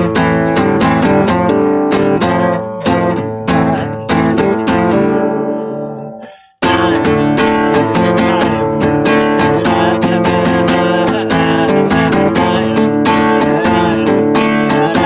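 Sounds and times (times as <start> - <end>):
strummed acoustic guitar: 0.0 - 15.0.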